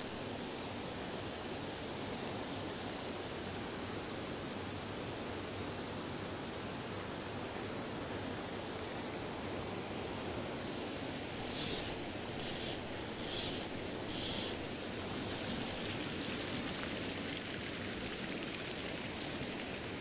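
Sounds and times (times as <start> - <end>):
stream rushing: 7.7 - 20.0
fishing reel ratchet buzzing: 11.4 - 16.0.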